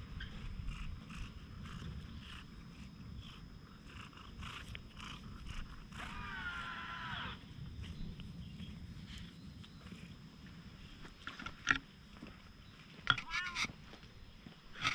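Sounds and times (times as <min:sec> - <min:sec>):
cat purring: 0:00.1 - 0:06.2, 0:07.7 - 0:10.4
cat meowing: 0:13.2 - 0:13.7.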